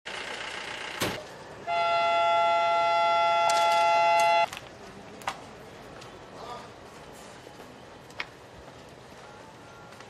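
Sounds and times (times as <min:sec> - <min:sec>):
train horn blast: 0:01.7 - 0:04.5.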